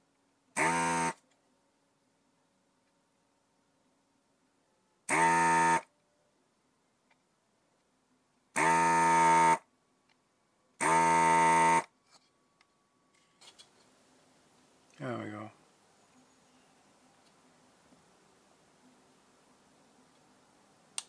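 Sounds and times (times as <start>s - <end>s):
electronic buzzer: 0.6s - 1.2s, 5.1s - 5.9s, 8.6s - 9.6s, 10.8s - 11.9s.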